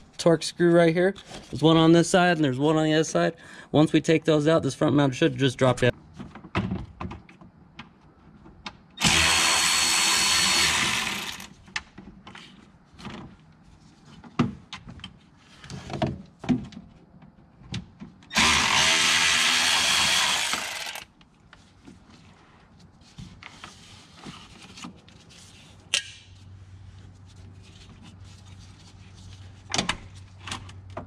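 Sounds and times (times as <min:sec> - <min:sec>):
cordless power driver running: 0:09.0 - 0:11.5, 0:18.3 - 0:21.1.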